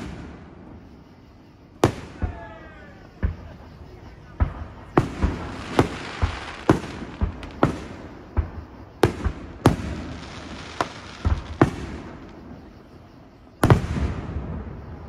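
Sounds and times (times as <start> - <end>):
firework shells bursting: 4.4 - 12.4.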